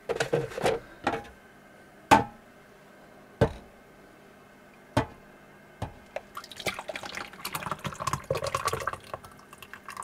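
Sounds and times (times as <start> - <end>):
broth pouring into a mug: 6.2 - 10.0.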